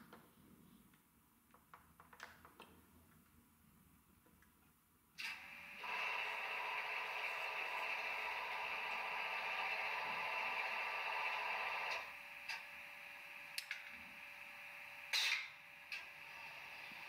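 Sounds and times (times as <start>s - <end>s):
faint hum: 5.2s - 17.0s
model locomotive engine sound: 5.3s - 15.1s.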